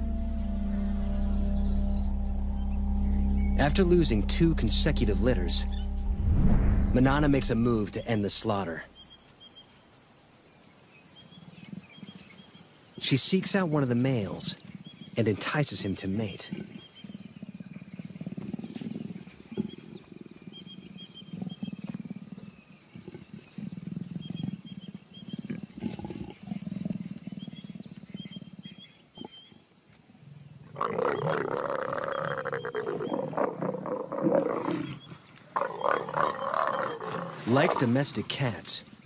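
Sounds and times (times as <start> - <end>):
insects trilling: 10.5 - 39.0
leopards growling and snarling: 11.2 - 13.1, 13.7 - 29.6, 30.2 - 39.0.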